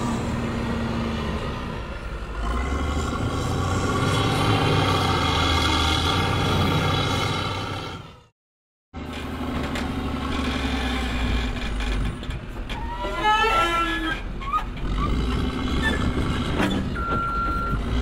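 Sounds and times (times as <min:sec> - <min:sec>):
wheel loader diesel engine: 0:00.0 - 0:08.3, 0:09.0 - 0:18.0.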